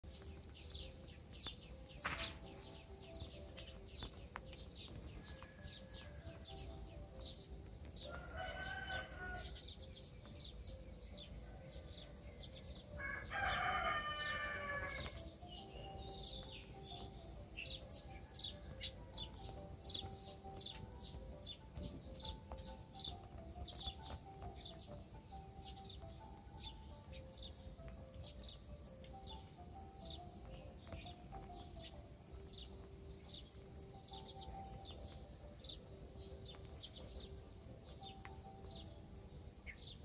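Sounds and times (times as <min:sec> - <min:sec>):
small birds chirping: 0:00.0 - 0:40.0
rooster crowing: 0:05.2 - 0:06.4, 0:08.0 - 0:09.7, 0:11.6 - 0:15.2.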